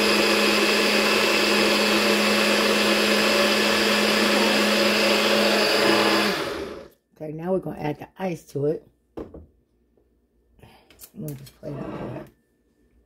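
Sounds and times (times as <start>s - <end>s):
blender motor running: 0.0s - 6.9s.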